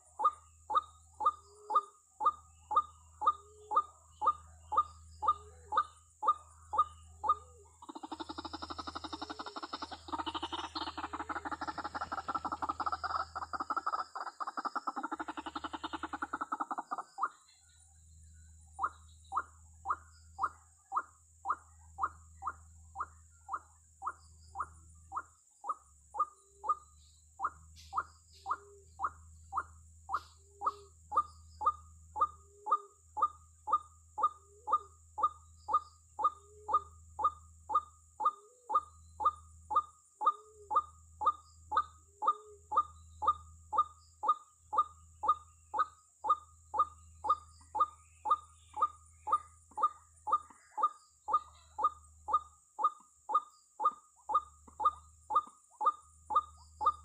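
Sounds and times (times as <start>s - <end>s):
waterhen calling: 6.7s - 17.3s.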